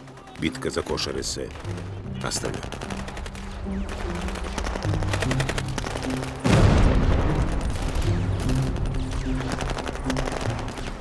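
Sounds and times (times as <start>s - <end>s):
low dramatic music: 0.0s - 11.0s
loud explosion: 6.5s - 8.0s.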